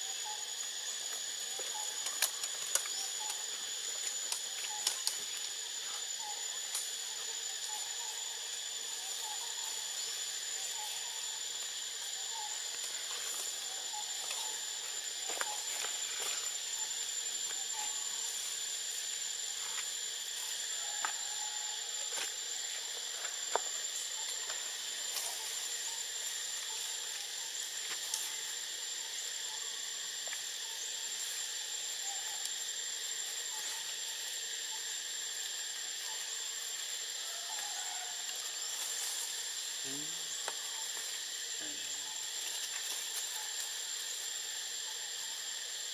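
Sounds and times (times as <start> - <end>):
even hiss: 0.0 - 45.9
high-pitched insect drone: 0.0 - 45.9.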